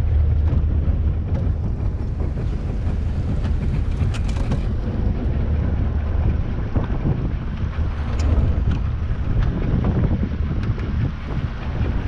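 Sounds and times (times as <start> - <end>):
motorboat engine running: 0.0 - 12.0
wind buffeting microphone: 0.0 - 12.0.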